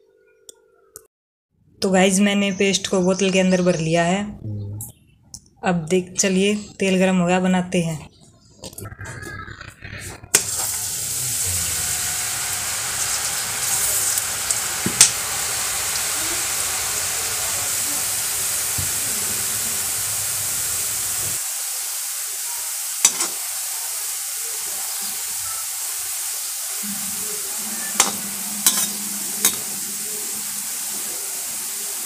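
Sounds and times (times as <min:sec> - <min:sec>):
batter sizzling in hot oil: 0:10.3 - 0:32.0.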